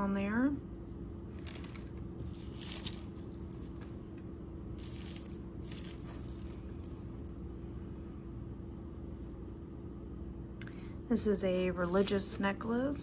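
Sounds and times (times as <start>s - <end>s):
steady low hum: 0.0s - 13.0s
metal jewelry clinking: 1.4s - 7.5s, 11.8s - 12.4s.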